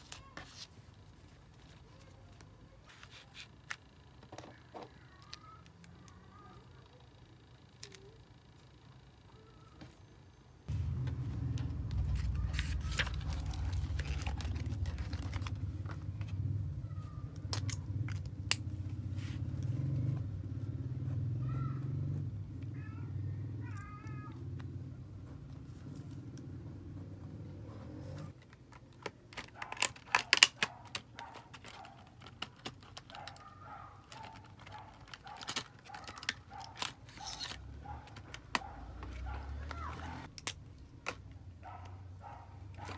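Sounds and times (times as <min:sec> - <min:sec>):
steady low hum: 0:02.6 - 0:28.4
pens and pen case clicking: 0:28.3 - 0:39.2.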